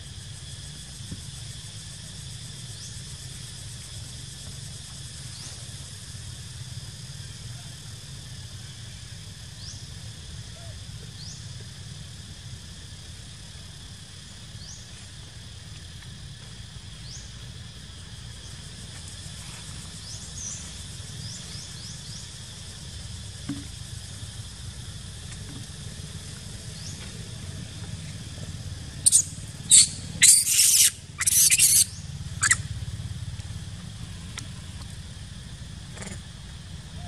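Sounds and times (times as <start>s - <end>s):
macaque screaming: 29.0s - 32.6s.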